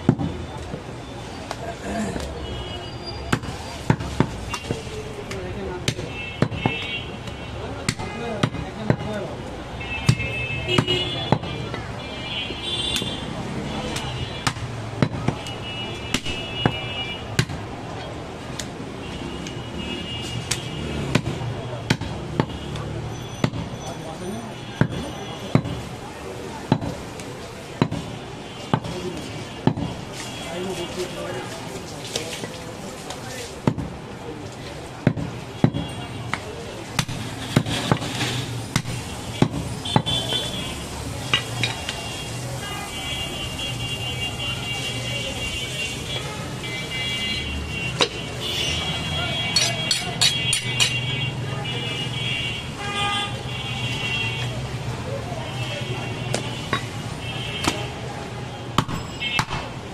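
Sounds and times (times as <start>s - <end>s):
market background noise: 0.0s - 59.9s
cleaver striking wooden block: 35.0s - 36.4s, 37.0s - 38.1s, 38.7s - 40.1s, 49.5s - 51.0s, 58.8s - 59.7s.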